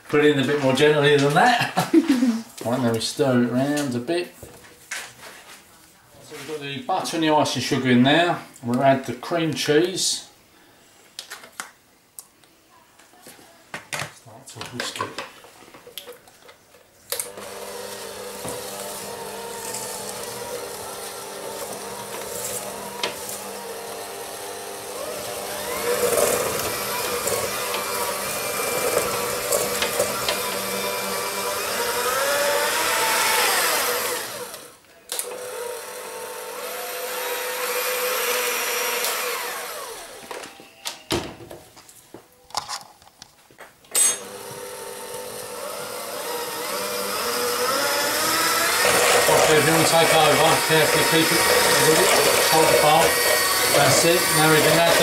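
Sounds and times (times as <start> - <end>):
mixer clicks: 17.1 - 35.6
electric hand mixer running: 17.2 - 40.4, 44.1 - 55.0.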